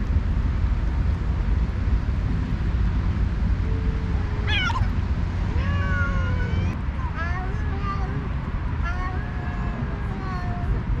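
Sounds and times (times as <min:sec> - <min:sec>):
steady low rumble: 0:00.0 - 0:11.0
cats yowling: 0:04.4 - 0:06.8.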